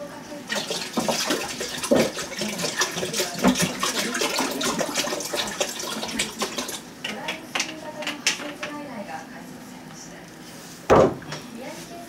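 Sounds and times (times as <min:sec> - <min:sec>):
tap water running into sink: 0:00.5 - 0:07.8.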